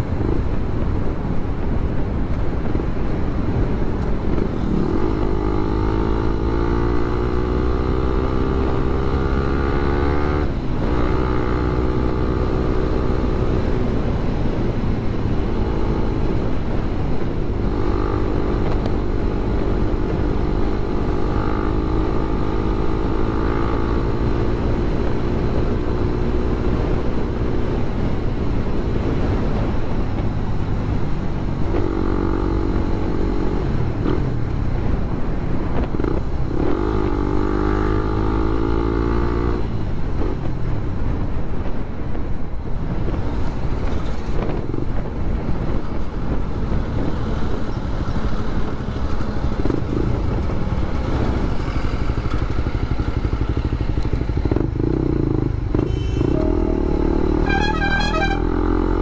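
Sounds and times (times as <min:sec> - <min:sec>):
wind and road noise: 0:00.0 - 0:59.0
motorcycle engine revving: 0:04.0 - 0:14.2, 0:15.0 - 0:27.7, 0:31.5 - 0:40.5, 0:47.0 - 0:59.0.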